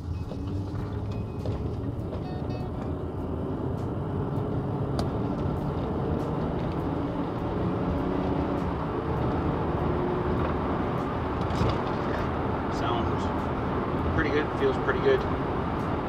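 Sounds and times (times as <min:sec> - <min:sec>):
engine and tyre drone in cabin: 0:00.0 - 0:16.0.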